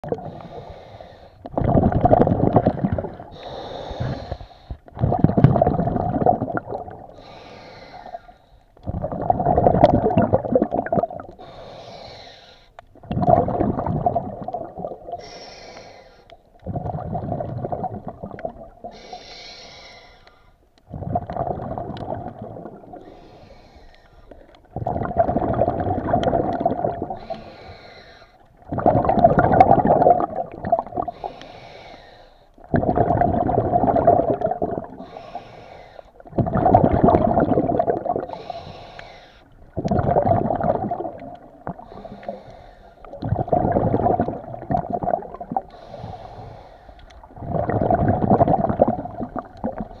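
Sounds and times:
exhaled bubbles rumbling: 0.0 - 0.6, 1.4 - 7.4, 8.8 - 11.7, 12.8 - 15.4, 16.5 - 19.2, 20.8 - 23.5, 24.3 - 31.4, 32.6 - 35.5, 36.2 - 50.0
regulator inhale hiss: 0.2 - 1.5, 3.3 - 4.8, 7.1 - 8.8, 11.4 - 12.8, 15.2 - 16.4, 18.8 - 20.6, 23.0 - 24.6, 27.2 - 28.4, 31.1 - 32.6, 35.0 - 36.2, 38.3 - 39.6, 41.8 - 43.2, 45.7 - 47.3.

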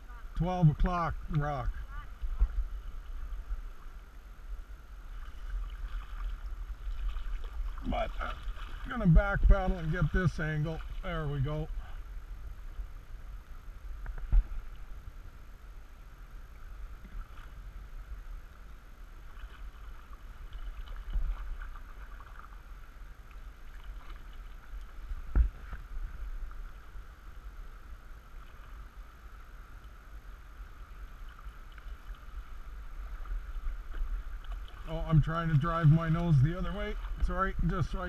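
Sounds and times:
rushing river water: 0.0 - 38.0
paddle strokes splashing: 4.9 - 12.2, 16.7 - 18.2, 19.1 - 29.2, 30.5 - 38.0.

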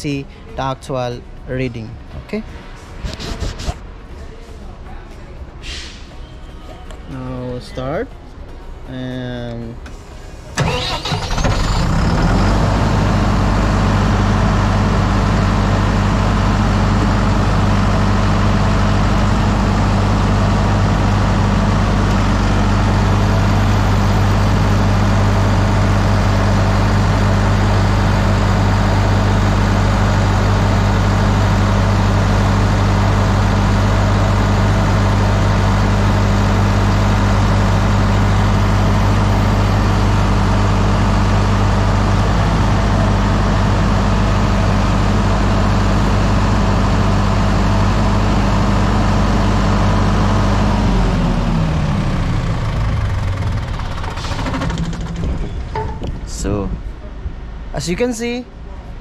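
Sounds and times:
diesel generator running: 0.0 - 4.1, 7.2 - 59.0.

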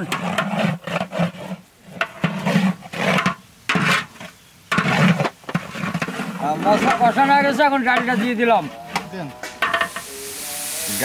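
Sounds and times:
spatula scraping cooking pot: 0.0 - 11.0
spices frying in oil: 9.6 - 11.0.

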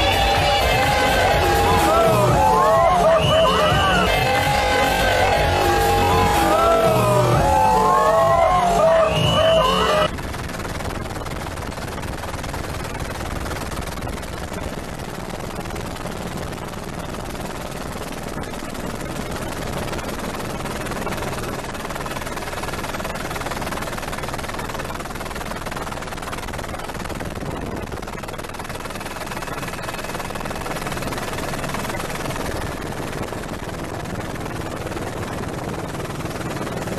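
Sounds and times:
helicopter engine and rotors: 0.0 - 36.9.

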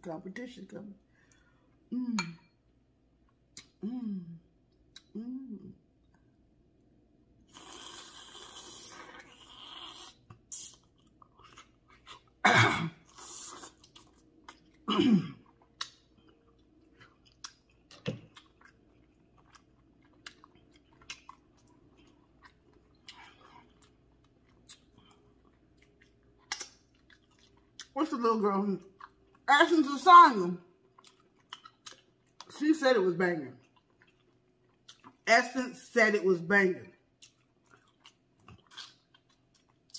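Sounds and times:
person chewing: 4.6 - 5.2, 7.4 - 28.0, 30.8 - 32.5, 33.6 - 35.2, 37.1 - 39.9.

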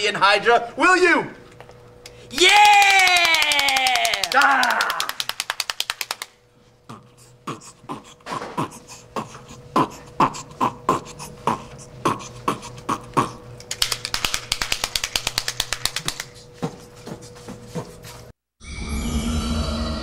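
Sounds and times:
man beatboxing: 6.9 - 18.0.

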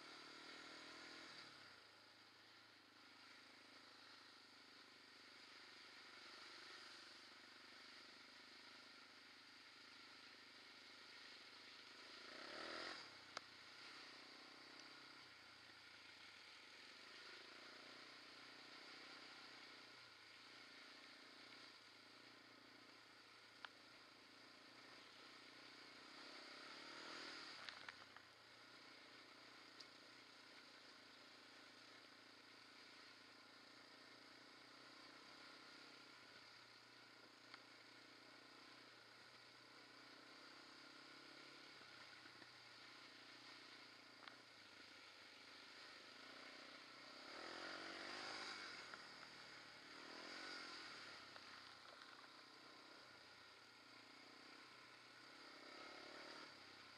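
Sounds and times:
quad bike engine revving: 0.0 - 1.5, 12.0 - 13.2, 25.6 - 27.9, 45.8 - 52.0, 55.3 - 56.7.

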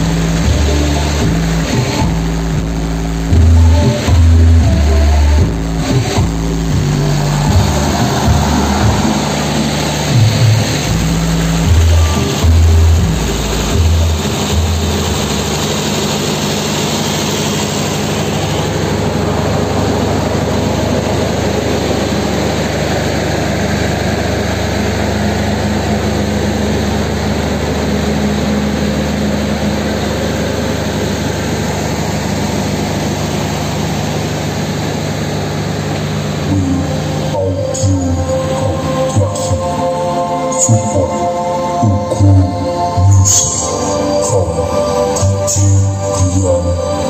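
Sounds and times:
large engine idling: 0.0 - 47.0
deep bass thumps: 5.4 - 12.0.

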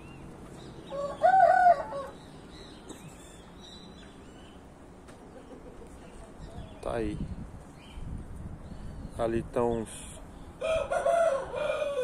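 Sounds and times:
rooster crowing: 0.9 - 2.2, 10.6 - 12.0.

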